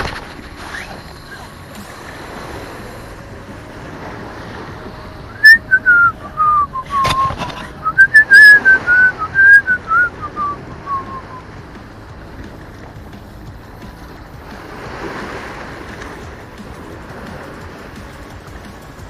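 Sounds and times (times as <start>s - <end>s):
wind and sea hiss: 0.0s - 19.0s
person whistling a tune: 5.3s - 11.5s.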